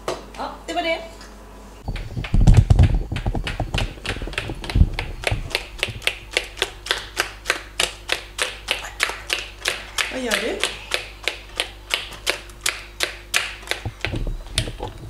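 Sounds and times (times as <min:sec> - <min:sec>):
low rumbling and knocks: 0:01.9 - 0:06.1, 0:13.8 - 0:15.0.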